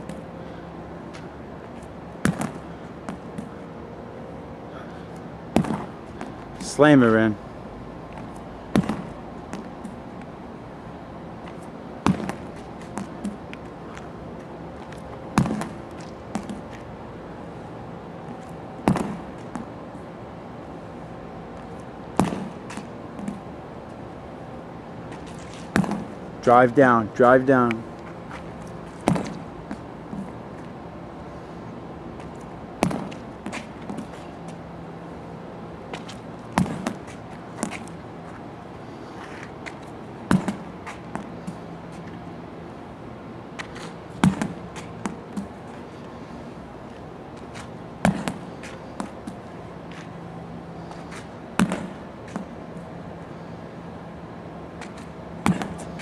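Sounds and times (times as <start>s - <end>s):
background hum: 0.0s - 56.0s
ball bouncing: 2.2s - 3.5s, 5.5s - 6.8s, 8.2s - 10.0s, 11.5s - 14.1s, 14.9s - 16.8s, 18.4s - 19.7s, 22.2s - 23.5s, 25.1s - 26.2s, 27.7s - 30.4s, 32.2s - 34.6s, 35.9s - 38.0s, 39.6s - 42.1s, 43.6s - 45.6s, 47.6s - 50.1s, 51.6s - 52.5s, 54.8s - 56.0s
medicine ball slamming on concrete: 2.2s - 3.5s, 5.5s - 6.4s, 8.7s - 10.0s, 12.0s - 13.4s, 15.3s - 16.6s, 18.8s - 19.7s, 22.2s - 23.4s, 25.7s - 26.2s, 29.0s - 30.3s, 32.8s - 34.1s, 36.0s - 37.0s, 40.3s - 41.3s, 44.2s - 45.5s, 48.0s - 49.2s, 51.6s - 52.5s, 54.8s - 56.0s
knocks and scuffs: 5.6s - 6.8s, 25.1s - 26.2s, 27.6s - 30.8s, 32.2s - 34.6s, 35.9s - 38.5s, 39.1s - 42.2s, 43.5s - 46.2s, 46.9s - 50.2s, 54.8s - 56.0s.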